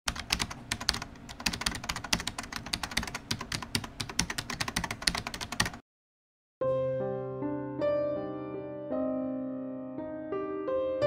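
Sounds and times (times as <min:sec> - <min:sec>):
rapid sharp clicks: 0:00.1 - 0:05.8.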